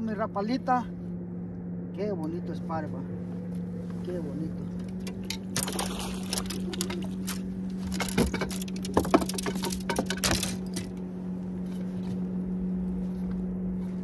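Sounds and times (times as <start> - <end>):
boat motor humming: 0.0 - 14.0
clicks and rattles: 4.8 - 11.0.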